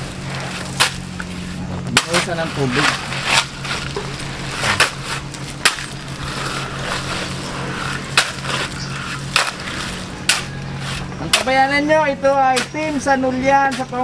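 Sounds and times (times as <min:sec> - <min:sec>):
shovels scraping through gravel: 0:00.0 - 0:14.0
steady low hum: 0:00.0 - 0:14.0.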